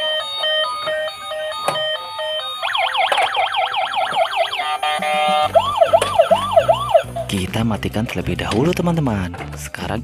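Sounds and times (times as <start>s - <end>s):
beeping tune: 0.0s - 7.3s
electronic toy siren wailing: 0.0s - 7.3s.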